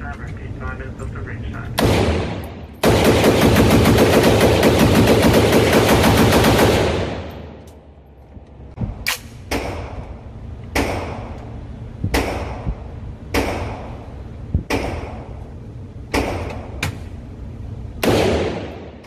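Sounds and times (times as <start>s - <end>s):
rapid rifle shots: 1.8s - 7.6s, 18.0s - 19.0s
single gunshots with echo: 13.3s - 14.0s, 18.0s - 19.0s.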